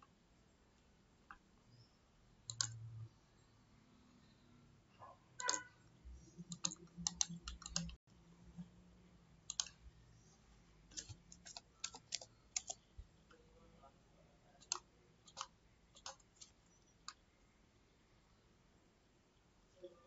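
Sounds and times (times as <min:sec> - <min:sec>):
mouse and keyboard clicks: 0:02.5 - 0:02.8, 0:05.4 - 0:05.7, 0:06.4 - 0:08.0, 0:09.5 - 0:09.8, 0:10.9 - 0:12.8, 0:14.6 - 0:17.2.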